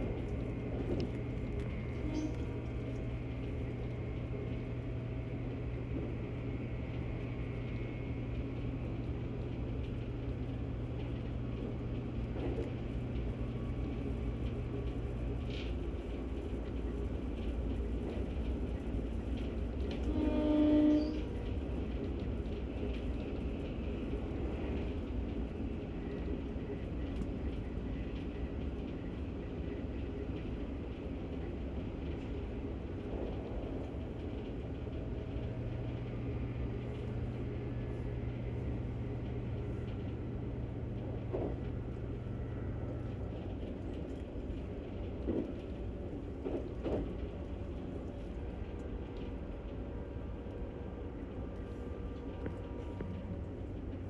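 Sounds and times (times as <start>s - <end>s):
low hum: 0.0s - 17.5s
train wheels rumbling on rails: 0.0s - 54.0s
train horn: 1.9s - 2.8s, 20.0s - 21.4s.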